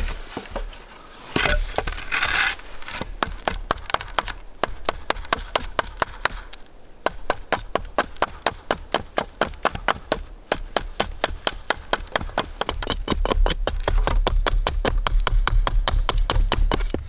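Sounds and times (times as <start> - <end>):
hatchet chopping wood: 2.9 - 17.0.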